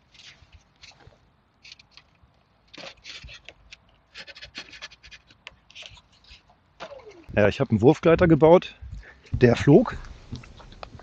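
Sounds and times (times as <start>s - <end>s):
fingers scratching plastic propeller: 2.8s - 6.5s.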